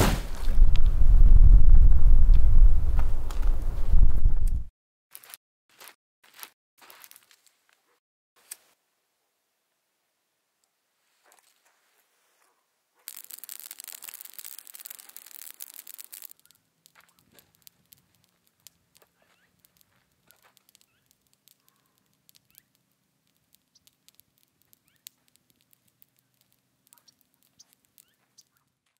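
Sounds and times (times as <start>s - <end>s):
brush fire crackling: 0.0s - 3.8s, 13.0s - 28.9s.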